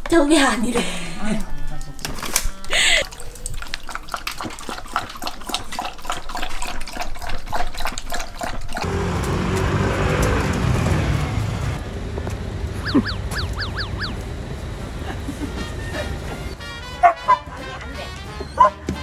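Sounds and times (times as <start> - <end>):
dog lapping water: 2.3 - 9.3
steady background hum: 11.8 - 16.7
music: 15.7 - 19.0.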